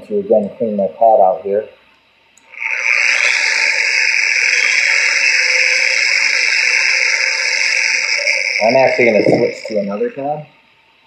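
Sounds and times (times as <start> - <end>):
polisher hissing whir: 2.4 - 10.5.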